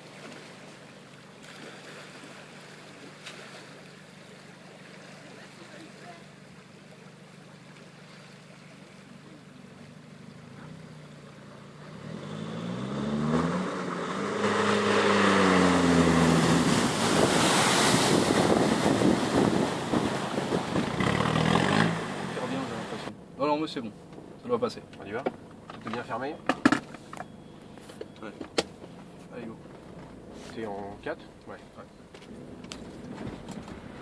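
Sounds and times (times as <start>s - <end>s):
water splashing and churning: 0.0s - 23.2s
vehicle engine revving: 10.3s - 23.1s.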